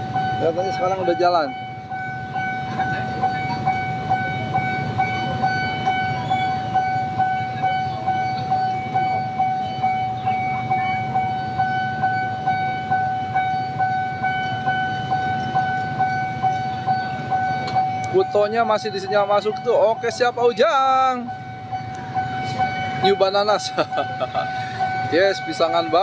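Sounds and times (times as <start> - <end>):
level crossing warning bell: 0.0 - 26.0.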